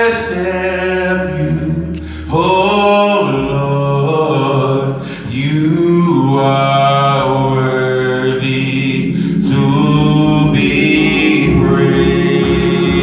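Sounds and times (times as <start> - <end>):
church organ chords: 0.0 - 13.0
worship singing: 0.0 - 13.0.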